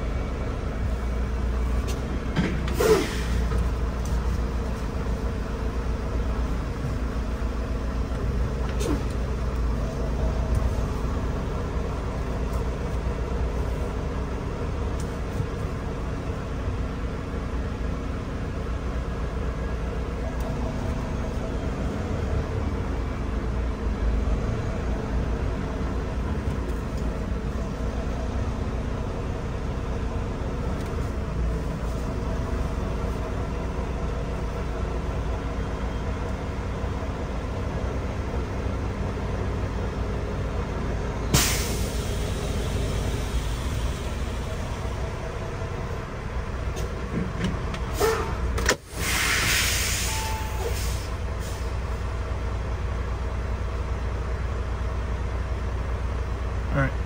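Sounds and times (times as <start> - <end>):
truck diesel engine rumbling: 0.0 - 57.0
air brakes hissing: 2.6 - 3.6, 41.3 - 44.9, 47.9 - 51.8.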